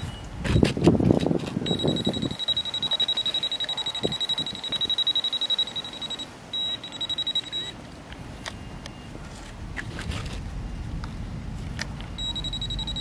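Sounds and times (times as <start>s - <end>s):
pinpointer probe pulsing beep: 1.6s - 7.8s, 12.1s - 13.0s.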